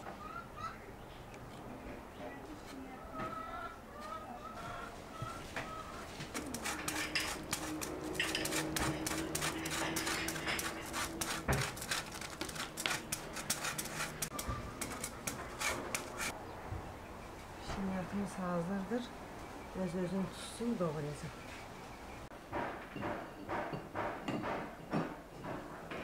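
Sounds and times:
chocolate scraping on grater: 6.3s - 16.3s
birds chirping faintly: 11.8s - 22.3s.

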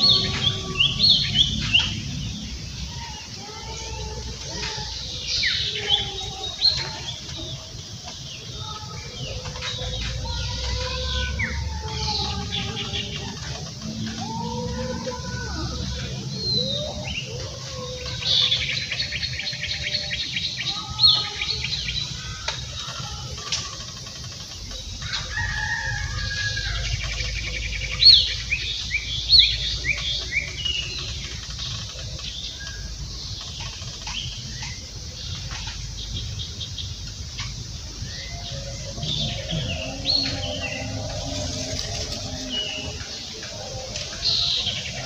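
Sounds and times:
birds chirping: 0.0s - 45.0s
steady low rumble: 26.0s - 45.0s.

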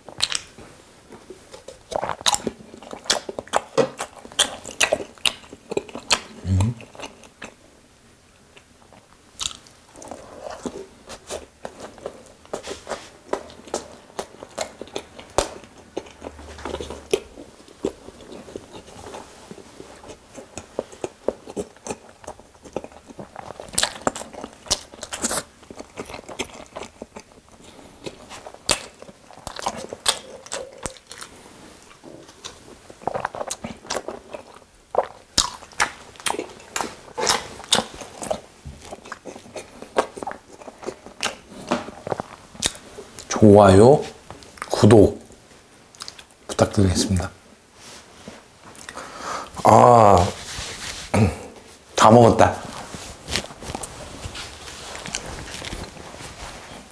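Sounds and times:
chewing with wet mouth clicks: 0.1s - 0.6s, 1.5s - 7.6s, 13.3s - 19.2s, 20.0s - 31.3s, 32.3s - 41.4s, 42.0s - 43.3s, 45.9s - 46.6s.

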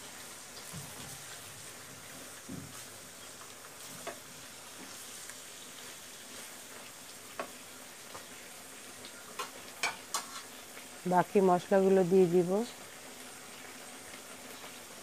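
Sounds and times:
meat sizzling in oil: 0.0s - 15.0s.

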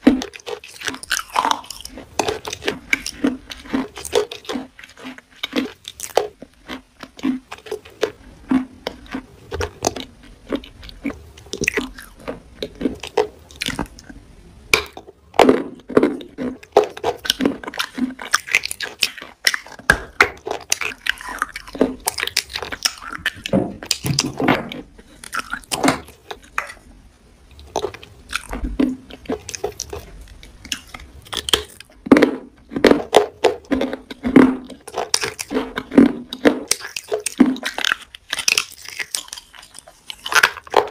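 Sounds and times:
person chewing juicy fruit: 0.0s - 40.9s.

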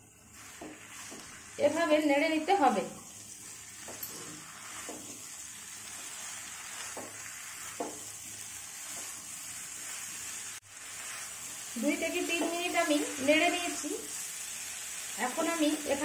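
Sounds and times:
food sizzling in a wok: 0.0s - 16.0s
spatula strokes against pan: 0.0s - 16.0s.

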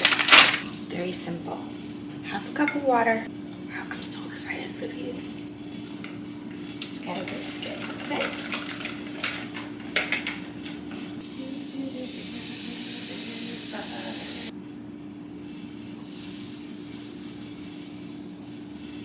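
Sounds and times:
pancakes hissing in pan: 11.3s - 14.5s, 15.9s - 19.0s.

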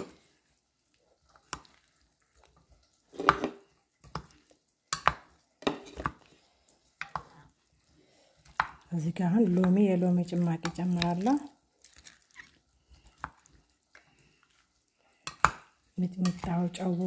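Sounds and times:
plastic spoon scraping ceramic dish: 5.6s - 6.1s.

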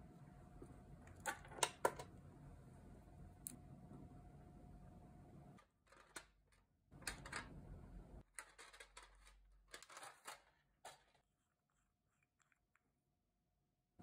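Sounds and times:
faint steady hum: 0.0s - 5.7s.

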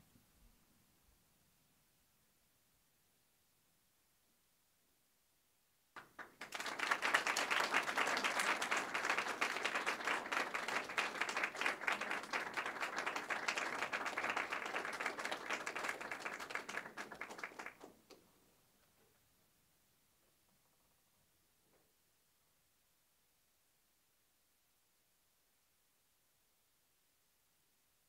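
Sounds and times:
audience applauding: 6.0s - 18.0s.

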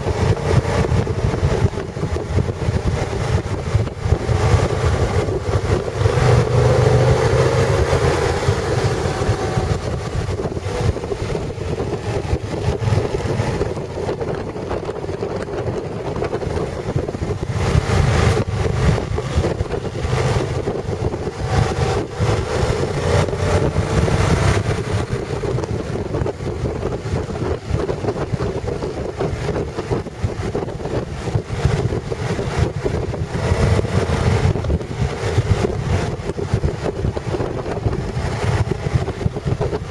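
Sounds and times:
motorcycle engine running: 0.0s - 39.9s
wind on microphone: 0.0s - 39.9s.

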